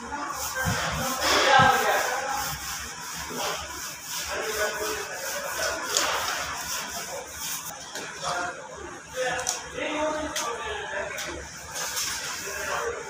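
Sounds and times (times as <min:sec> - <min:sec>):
hand rubbing on steel tray: 0:00.1 - 0:07.7.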